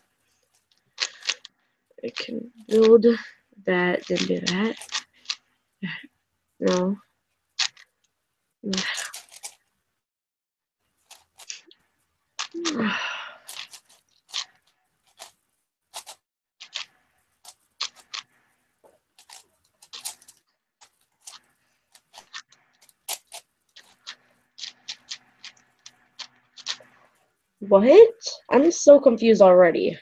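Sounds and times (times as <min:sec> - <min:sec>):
speed cube clicking: 0:04.1 - 0:05.4, 0:07.6 - 0:07.8, 0:13.5 - 0:14.5, 0:16.0 - 0:16.9, 0:17.8 - 0:18.3, 0:19.2 - 0:20.3, 0:22.0 - 0:26.9
breathy falling sound: 0:12.6 - 0:13.6.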